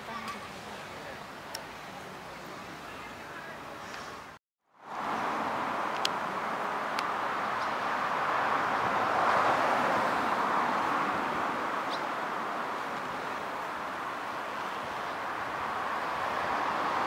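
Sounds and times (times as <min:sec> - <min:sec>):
river flowing: 0:04.1 - 0:17.0.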